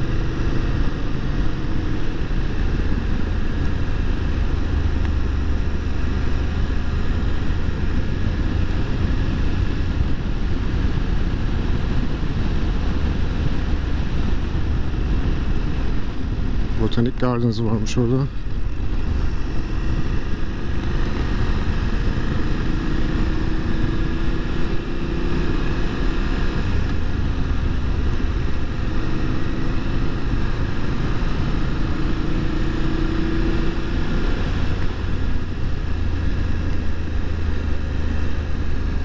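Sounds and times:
wind and road noise: 0.0 - 39.0
motorcycle engine running: 18.1 - 39.0.

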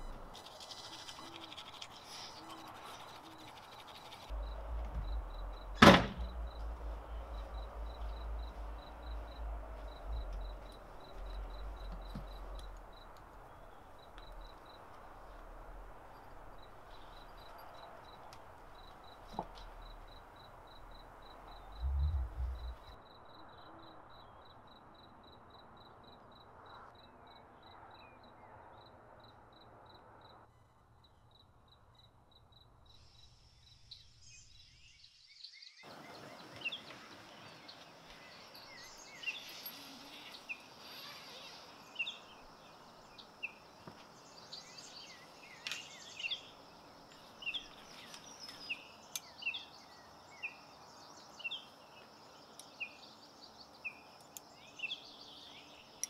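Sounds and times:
toothbrush scrubbing: 0.3 - 4.3
low rumble: 4.3 - 16.6, 19.6 - 23.0
low thump: 4.4 - 10.6, 21.7 - 23.0
loud knock: 5.8 - 6.4.

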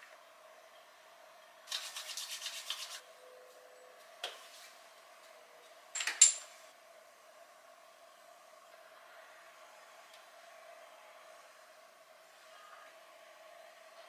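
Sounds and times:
palms rubbing together: 1.7 - 3.0.

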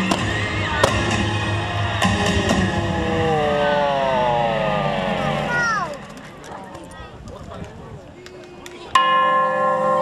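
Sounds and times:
show music: 0.0 - 6.3.

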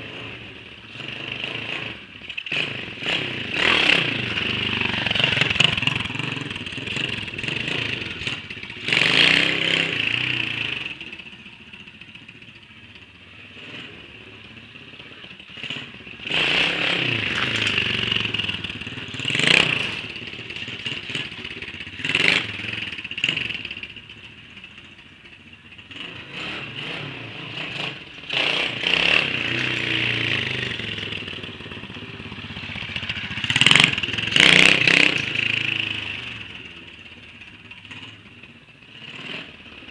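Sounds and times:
motorbike engine revving: 0.0 - 11.1, 13.5 - 24.0, 25.9 - 38.2.

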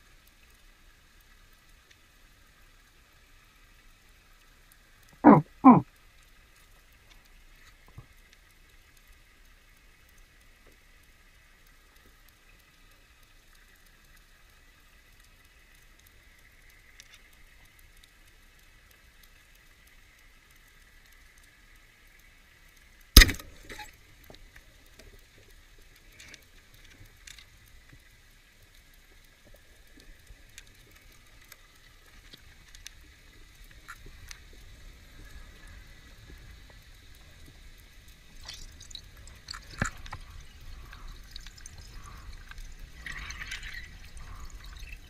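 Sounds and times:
faint underwater hiss: 0.0 - 45.0
faint clicks and knocks: 5.9 - 45.0
speargun firing crack: 23.2 - 23.6.

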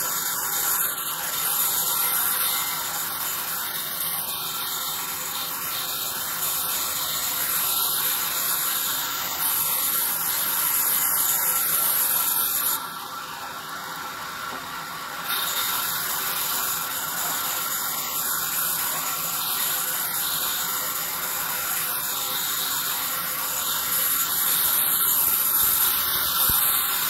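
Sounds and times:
band saw cutting wood: 0.0 - 27.0.

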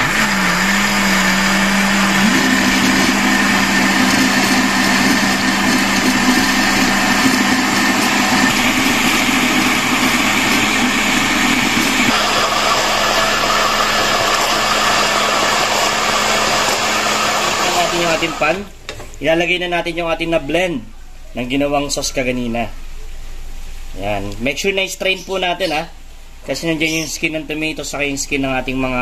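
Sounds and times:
electric blender running: 0.0 - 18.6.

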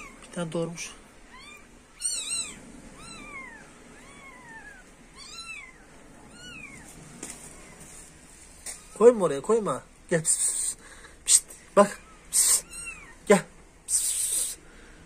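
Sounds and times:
kitten mewing: 1.3 - 7.9, 10.2 - 14.6.

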